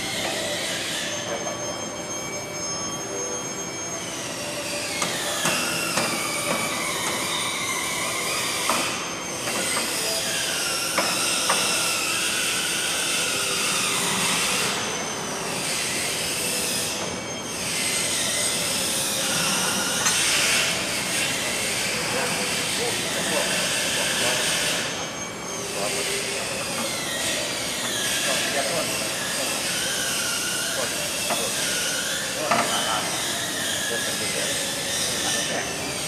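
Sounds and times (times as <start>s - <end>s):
metal squealing and whining: 0.0s - 36.0s.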